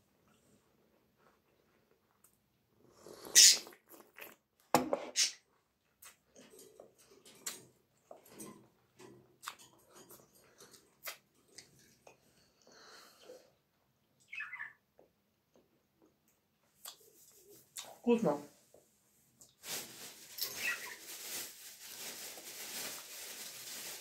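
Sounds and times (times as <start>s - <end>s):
wet chewing and lip-smacking: 10.6s - 12.2s, 16.8s - 17.1s.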